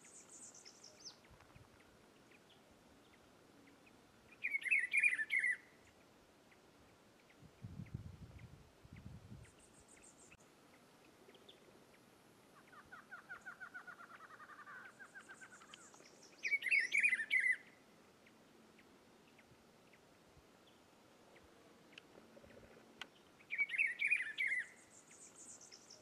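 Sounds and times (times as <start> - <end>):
birds trilling and chirping: 0.0 - 26.0
bird singing warbled phrase: 4.3 - 5.9, 12.6 - 17.8, 23.2 - 26.0.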